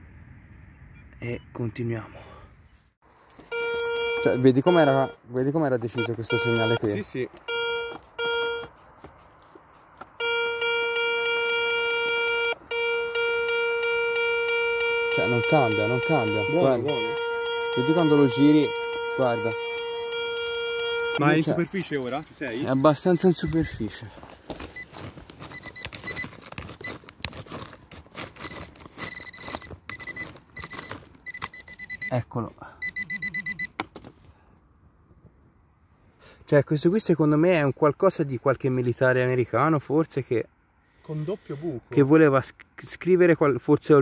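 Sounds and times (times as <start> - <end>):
metal detector tone: 3.4 - 8.7, 10.2 - 23.9, 28.4 - 33.8
clods and pebbles scraping: 23.4 - 31.2.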